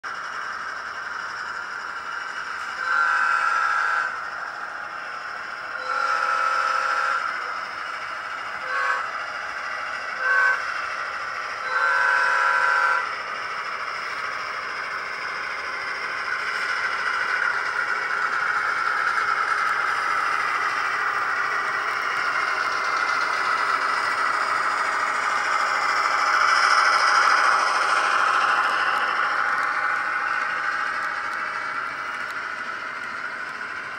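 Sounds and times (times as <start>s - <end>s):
train chime horn: 2.8s - 4.1s, 5.8s - 7.3s, 8.6s - 9.1s, 10.2s - 10.6s, 11.6s - 13.0s.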